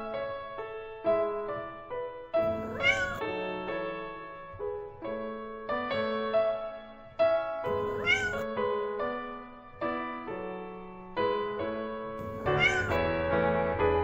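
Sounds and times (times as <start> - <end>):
piano music: 0.0 - 14.0
cat meowing: 2.4 - 3.3, 7.7 - 8.5, 12.2 - 13.1.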